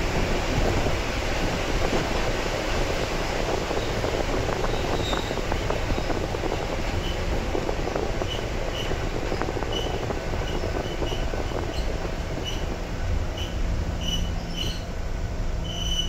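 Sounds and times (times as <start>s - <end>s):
train wheels rumbling on rail: 0.0s - 16.0s
high wheel squeaks: 4.6s - 6.3s, 7.9s - 14.9s, 15.6s - 16.0s.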